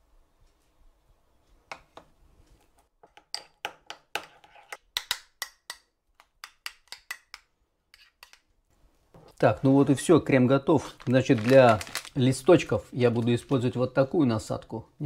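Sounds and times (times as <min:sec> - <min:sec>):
metal spoon stirring in ceramic bowl: 0:06.4 - 0:08.5.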